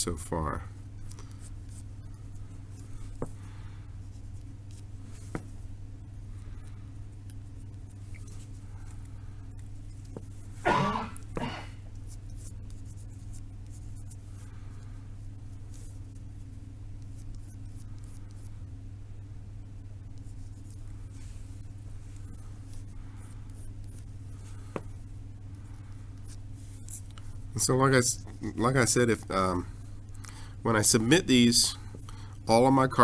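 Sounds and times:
steady low hum: 0:00.0 - 0:33.0
person coughing: 0:10.6 - 0:11.8
pencil scratching on card: 0:11.2 - 0:14.4, 0:15.6 - 0:18.5, 0:20.1 - 0:25.1.

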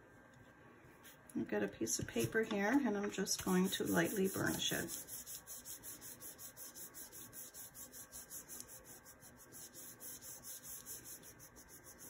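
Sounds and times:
fingertips rubbing paper: 0:03.4 - 0:12.0.

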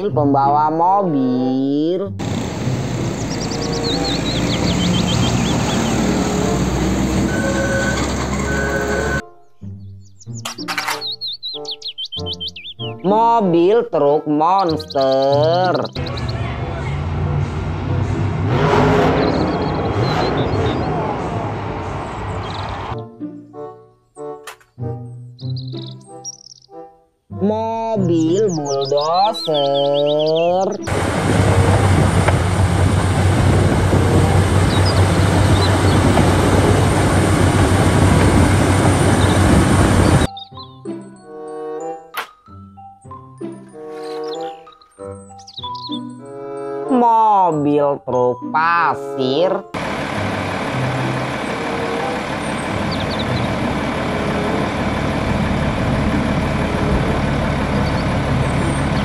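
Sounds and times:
diesel engine droning: 0:00.0 - 0:09.2, 0:14.9 - 0:23.0, 0:28.0 - 0:40.4, 0:49.0 - 0:59.0
tracks clattering: 0:02.2 - 0:09.2, 0:10.3 - 0:11.2, 0:30.8 - 0:40.3, 0:49.8 - 0:59.0.

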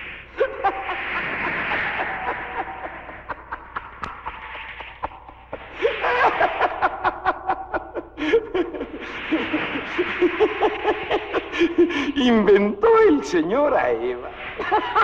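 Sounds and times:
high-pitched laughter: 0:00.4 - 0:12.3.

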